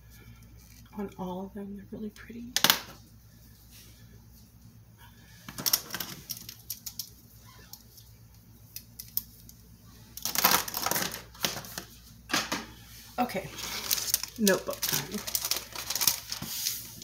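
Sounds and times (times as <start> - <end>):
pens scuffling clatter: 5.4 - 7.2, 10.2 - 12.7, 13.4 - 17.0.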